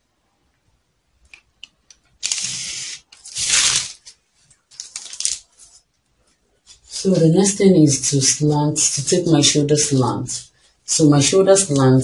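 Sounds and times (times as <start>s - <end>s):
plastic sheet crinkling and rustling: 2.2s - 6.0s.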